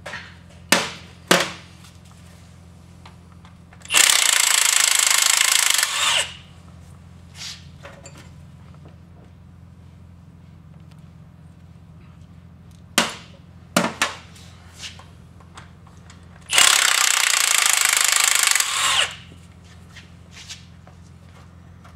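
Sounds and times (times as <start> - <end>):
impact wrench hammering: 3.8 - 6.4, 13.0 - 14.2, 16.4 - 19.4.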